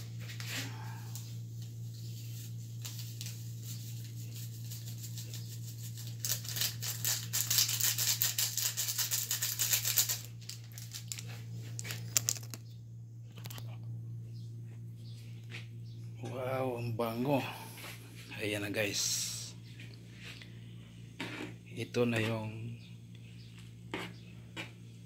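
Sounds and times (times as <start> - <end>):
low hum: 0.0 - 25.0
seasoning sachet rattling: 4.4 - 12.6.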